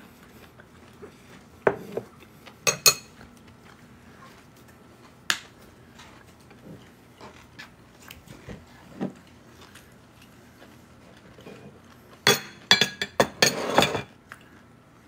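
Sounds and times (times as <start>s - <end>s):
spoon and dishes clinking: 2.7s - 3.1s, 12.2s - 14.1s.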